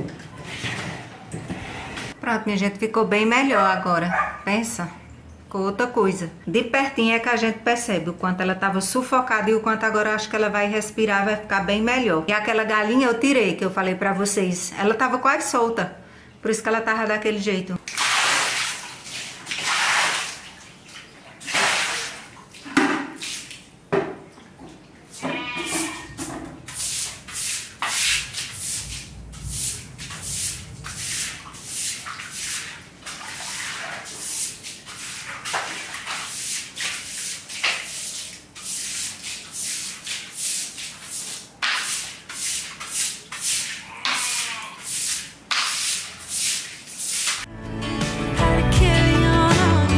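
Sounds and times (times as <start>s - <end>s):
water splashing onto tiled floor: 17.8s - 25.1s, 26.6s - 47.5s
broom scrubbing wet tiles: 17.9s - 23.6s, 25.0s - 47.5s.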